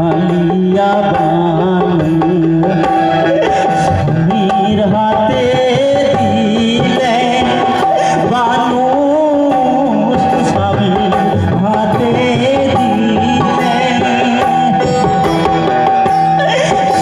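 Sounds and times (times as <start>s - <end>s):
hand drum rhythm: 0.0s - 17.0s
wavering folk melody: 9.8s - 17.0s.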